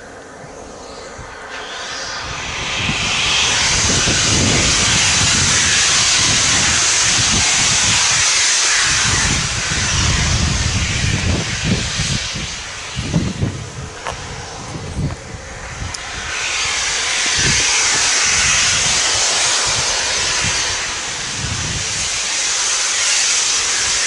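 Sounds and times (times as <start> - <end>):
rushing hiss of steam: 0.0 - 24.0
steam locomotive rhythmic rumble: 0.0 - 24.0.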